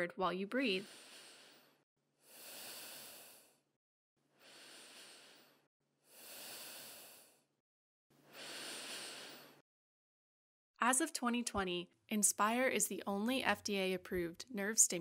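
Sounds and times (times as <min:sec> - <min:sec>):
quiet breaths: 0:00.8 - 0:03.7, 0:04.4 - 0:07.5, 0:08.2 - 0:09.6.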